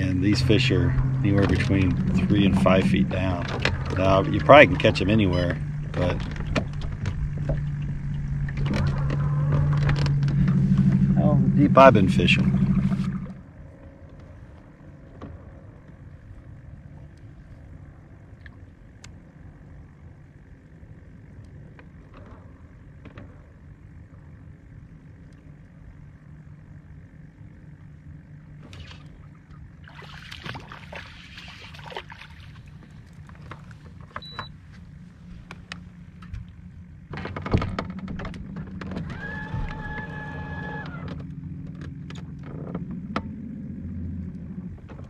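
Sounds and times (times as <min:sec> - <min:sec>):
low rumble of open water: 0:00.0 - 0:45.0
steady low hum: 0:00.0 - 0:45.0
fish splashing: 0:29.8 - 0:33.4.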